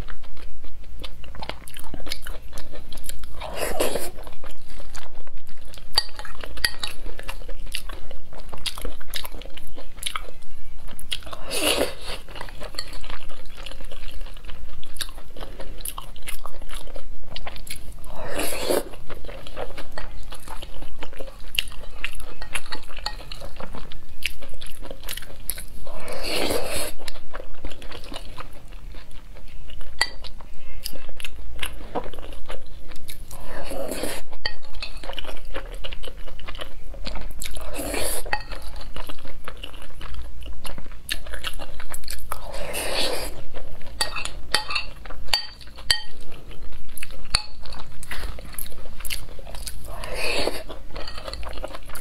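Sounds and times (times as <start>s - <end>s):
chewing and mouth clicks: 0.0s - 26.2s, 34.4s - 52.0s
utensils clinking on ceramic bowl: 38.2s - 38.8s, 44.0s - 46.2s, 51.0s - 51.6s
spoon scraping bowl: 50.0s - 51.7s.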